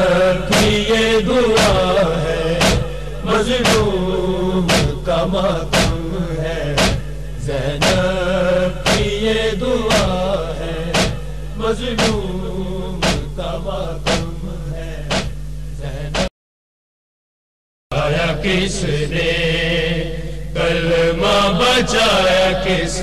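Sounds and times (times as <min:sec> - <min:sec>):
electrical hum: 0:00.0 - 0:16.3, 0:17.9 - 0:23.0
man chanting through sound system: 0:00.0 - 0:16.3, 0:17.9 - 0:23.0
sharp rhythmic slaps: 0:00.5 - 0:07.2, 0:07.8 - 0:12.3, 0:13.0 - 0:13.4, 0:14.0 - 0:14.4, 0:15.1 - 0:15.4, 0:16.0 - 0:16.3.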